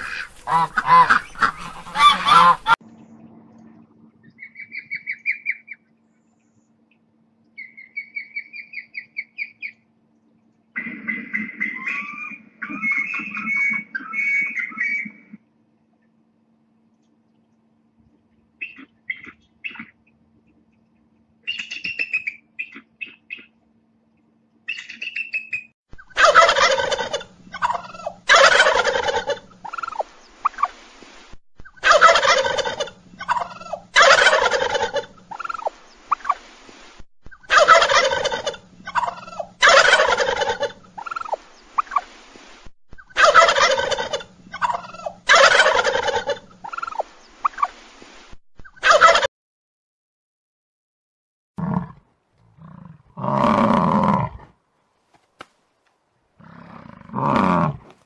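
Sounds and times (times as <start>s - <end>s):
eagle chattering calls: 0.0s - 2.8s
turkey gobbling loudly: 0.0s - 2.8s, 4.4s - 5.8s, 10.8s - 15.4s, 18.6s - 20.0s, 21.4s - 23.5s, 24.7s - 30.8s, 31.6s - 36.4s, 37.3s - 42.1s, 43.0s - 47.8s, 48.6s - 49.3s.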